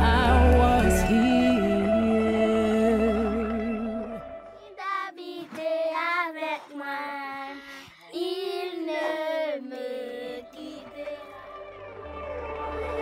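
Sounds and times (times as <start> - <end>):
children singing together: 4.6 - 11.5.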